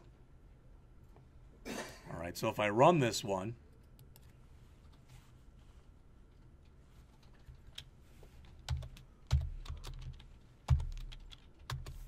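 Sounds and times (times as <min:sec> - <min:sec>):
keyboard and mouse clicks: 0:07.1 - 0:12.0.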